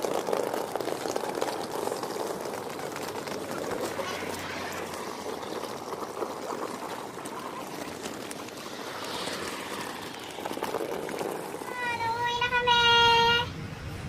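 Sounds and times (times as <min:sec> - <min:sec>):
wheeled suitcases rolling on road: 0:00.0 - 0:14.0.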